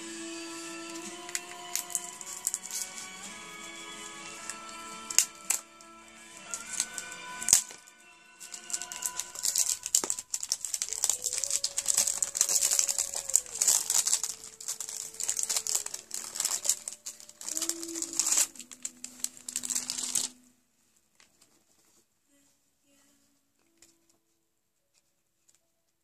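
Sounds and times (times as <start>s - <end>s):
packaging crinkling: 0.8s - 20.4s.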